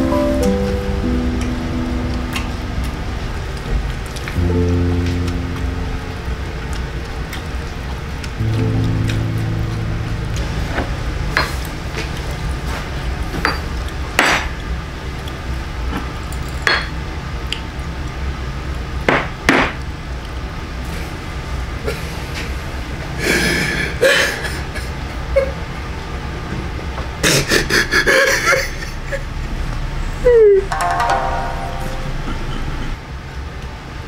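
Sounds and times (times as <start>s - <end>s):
steady low hum: 0.0s - 16.4s, 31.4s - 33.3s
tableware clinking: 13.4s - 13.7s.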